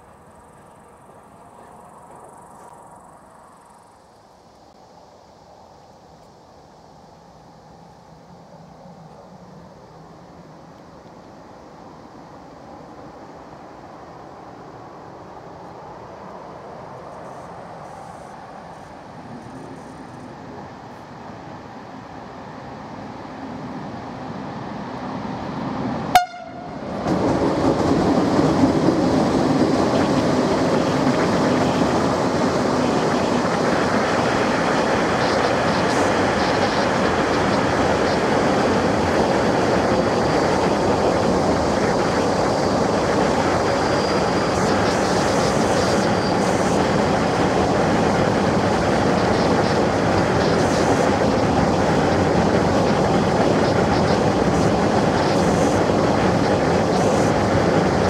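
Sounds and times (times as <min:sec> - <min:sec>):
wheels rumbling on rails: 0:08.3 - 0:58.0
short horn toot: 0:26.2 - 0:26.8.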